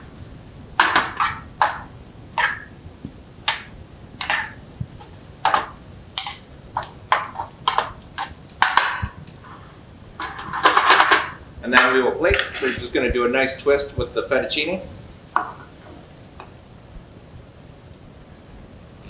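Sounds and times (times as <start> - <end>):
metal tongs clinking on pan: 5.4 - 9.4.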